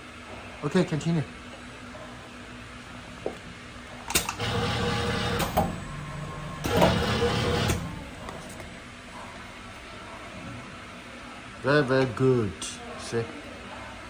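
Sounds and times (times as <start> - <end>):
machine clack: 4.1 - 5.8, 6.6 - 8.0
machine clicks: 4.1 - 5.8
machine running and sliding: 4.2 - 9.4.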